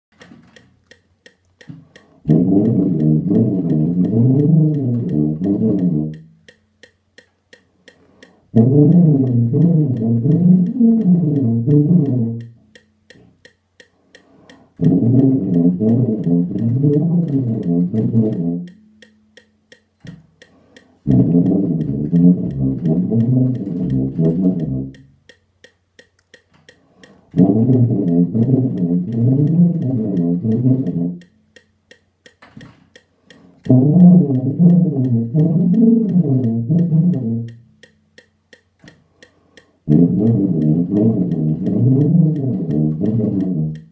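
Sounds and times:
metronome ticking: 0.0 - 43.9
tuba playing fast slurred notes: 2.2 - 6.5, 8.5 - 12.8, 14.7 - 19.0, 21.0 - 25.2, 27.3 - 31.4, 33.6 - 37.8, 39.8 - 43.9.

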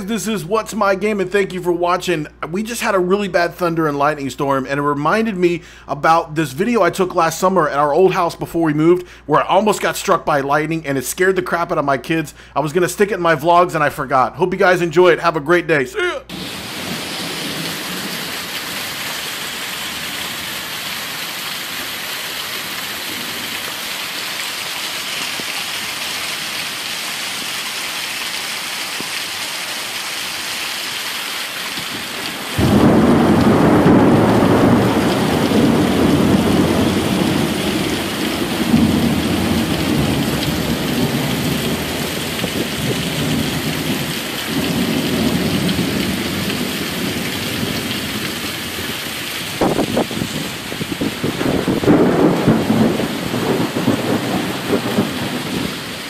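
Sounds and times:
heavy rain pouring: 16.0 - 56.0
thunder rumbling: 16.3 - 20.7, 31.9 - 56.0.

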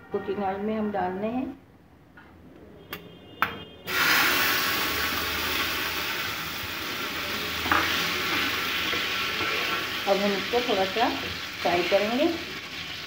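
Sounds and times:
garlic sizzling in hot oil: 3.9 - 13.0.

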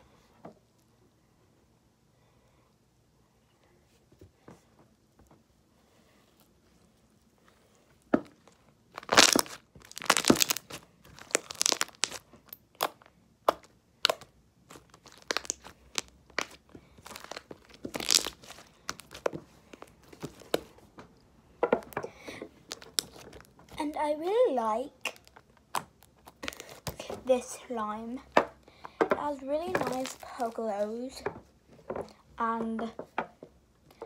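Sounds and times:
sticky slime crackles and pops: 8.9 - 20.7, 22.6 - 23.5, 25.0 - 27.2, 29.7 - 30.6.

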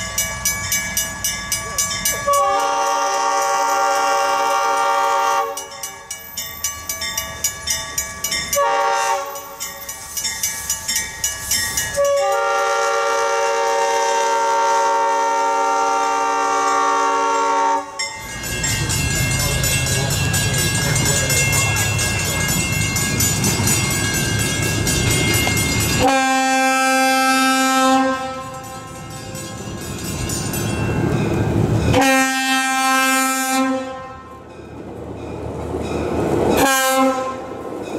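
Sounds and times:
train wheels on rails: 0.0 - 37.9
locomotive air horn: 2.3 - 5.6, 8.6 - 9.4, 12.0 - 18.0, 26.0 - 29.1, 31.9 - 34.4, 36.6 - 37.5
train horn: 2.3 - 5.7, 8.6 - 9.4, 12.0 - 18.0, 26.0 - 29.2, 31.9 - 34.4, 36.6 - 37.6
locomotive engine rumble: 18.2 - 32.0.

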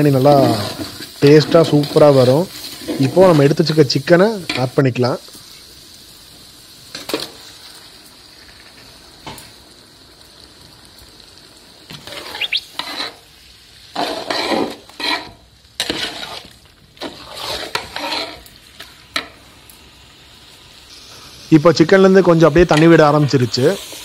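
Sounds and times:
masala sizzling in a pot: 0.0 - 24.0
metal ladle scraping a pot: 12.0 - 13.2, 14.0 - 18.5.

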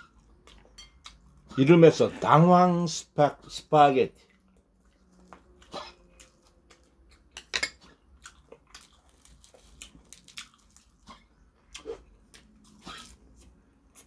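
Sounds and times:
chopsticks clinking on dishes: 0.7 - 1.2.

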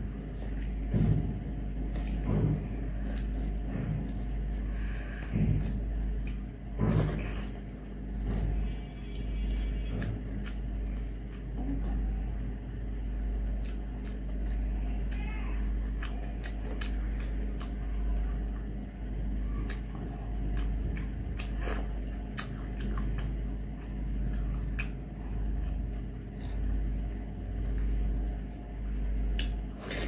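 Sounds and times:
steady low rumble: 0.0 - 29.8
fingers squishing wet food: 13.2 - 30.0.

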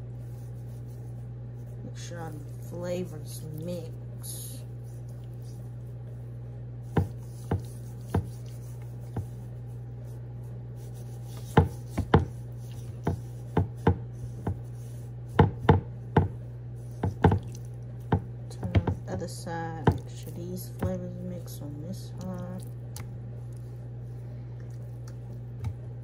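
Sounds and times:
steady low hum: 0.0 - 26.0
hands patting raw fish: 4.8 - 19.1, 19.7 - 21.5, 24.8 - 26.0.

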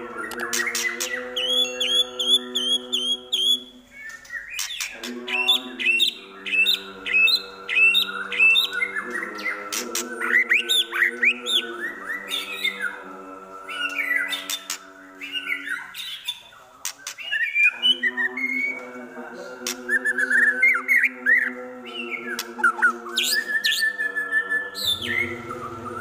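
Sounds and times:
bird singing whistled notes: 0.2 - 12.9, 22.0 - 26.0
bird chattering calls: 24.8 - 26.0.

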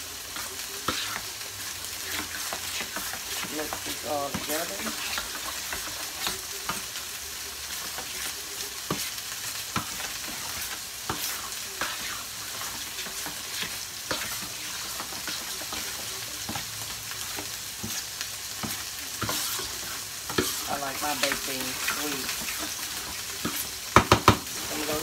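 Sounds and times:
ground beef sizzling in a skillet: 0.0 - 25.0
spoon scraping a metal pan: 9.8 - 16.6, 17.3 - 23.8.

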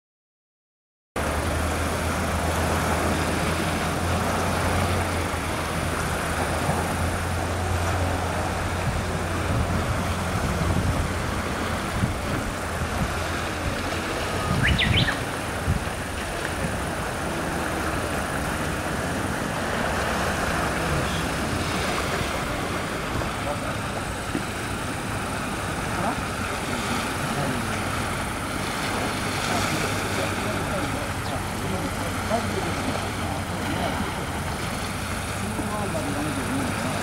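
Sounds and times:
distant engines droning: 1.2 - 37.0
bird chirp: 14.4 - 15.2.

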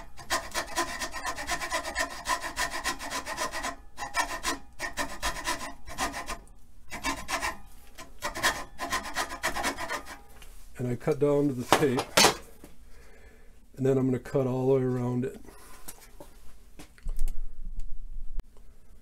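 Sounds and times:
hacksaw cutting wood: 0.0 - 10.3.

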